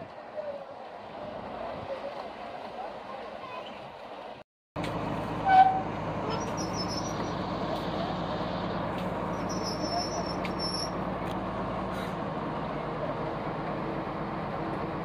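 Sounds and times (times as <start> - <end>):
diesel engine running: 0.6 - 15.0
high-pitched horn toot: 5.4 - 7.2.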